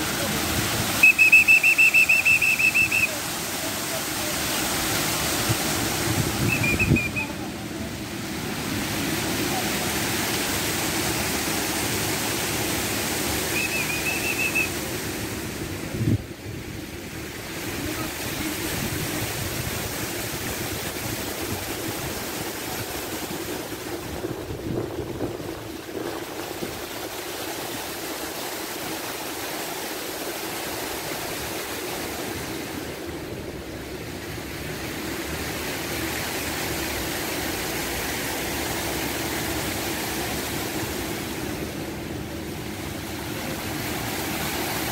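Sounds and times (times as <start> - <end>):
fountain water splashing into pool: 0.0 - 44.9
wind: 0.0 - 44.9
short high chirp: 1.0 - 3.2, 6.4 - 7.3.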